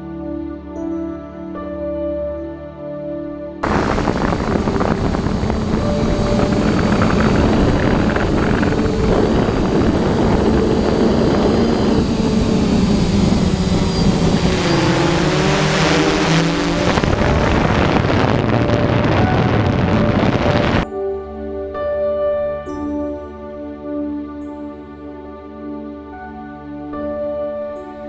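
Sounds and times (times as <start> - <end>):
drone propellers whirring: 3.6 - 20.8
rush of air: 3.6 - 20.8
thin high whine: 3.6 - 21.0.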